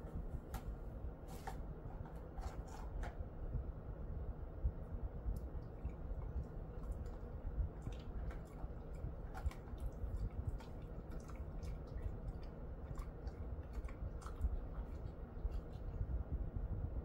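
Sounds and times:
dog chewing and licking: 0:05.4 - 0:16.1.

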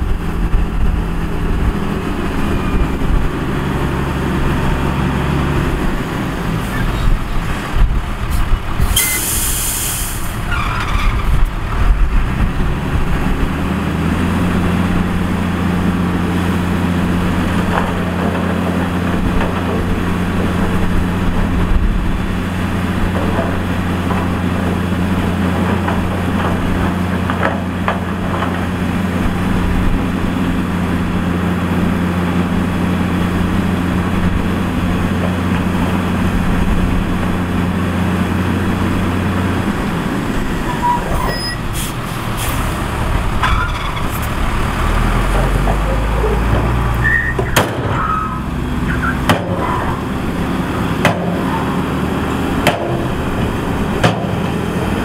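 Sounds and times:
heavy diesel engine running: 0:00.0 - 0:55.0
short hiss: 0:08.9 - 0:10.4.

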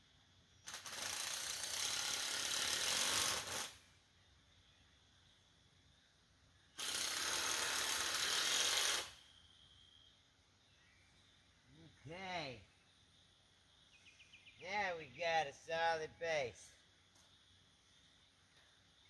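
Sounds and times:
handheld power tool running: 0:00.7 - 0:03.7, 0:06.8 - 0:09.1.

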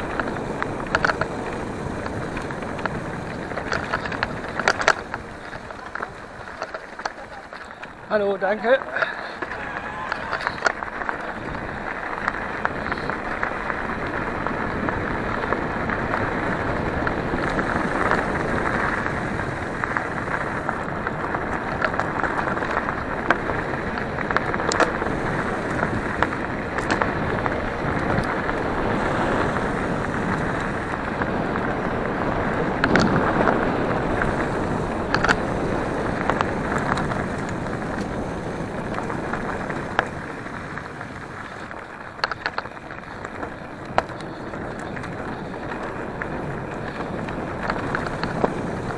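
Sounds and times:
bike tyres crunching on gravel: 0:00.0 - 0:48.9
stones clicking and knocking: 0:00.1 - 0:08.0, 0:08.8 - 0:13.5, 0:35.0 - 0:35.4, 0:41.1 - 0:48.5.

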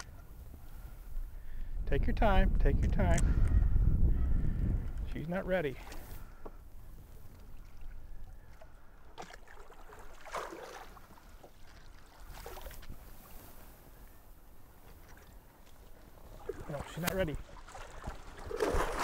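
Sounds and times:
fish splashing at water surface: 0:09.2 - 0:11.2, 0:17.6 - 0:19.0.

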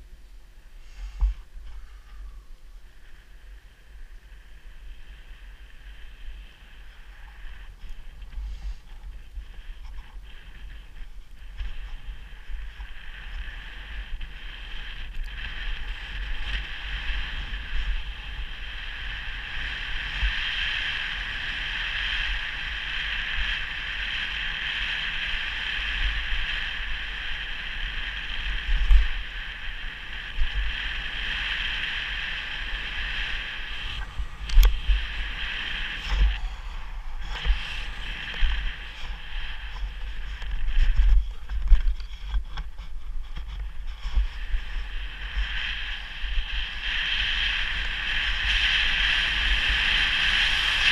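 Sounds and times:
skis hissing through snow: 0:00.8 - 0:01.5, 0:06.0 - 0:11.0, 0:25.0 - 0:41.6, 0:43.7 - 0:50.9
wind buffeting microphone: 0:01.2 - 0:50.9.

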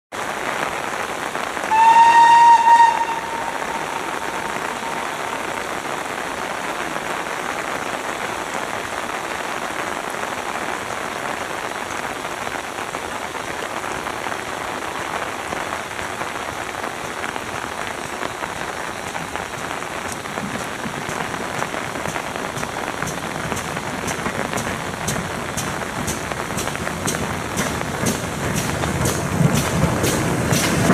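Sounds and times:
rain falling on an umbrella: 0:00.1 - 0:30.9
steam locomotive whistle: 0:01.7 - 0:05.7.

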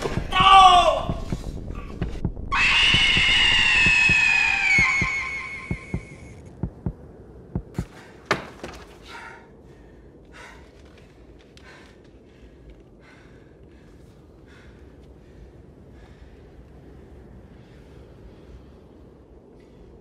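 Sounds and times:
pounding heartbeat: 0:00.0 - 0:08.0
shrill high scream: 0:02.5 - 0:06.3.

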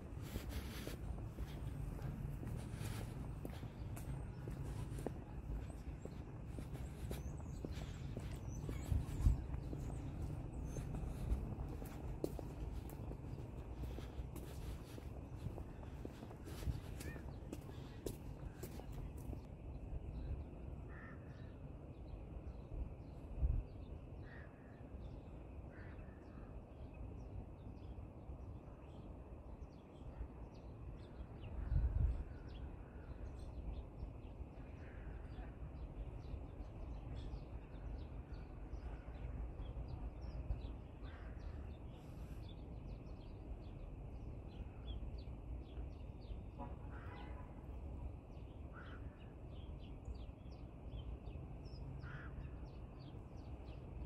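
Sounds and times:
birds chirping: 0:00.0 - 0:20.3
steady low rumble: 0:00.0 - 0:20.8.

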